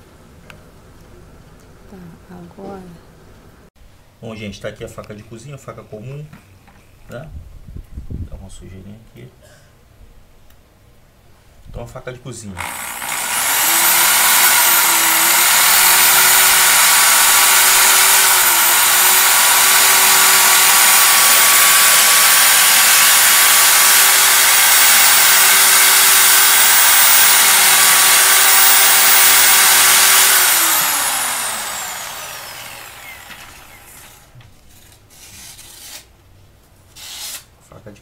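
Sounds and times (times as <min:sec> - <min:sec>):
drill motor whine: 0:12.6 - 0:34.2.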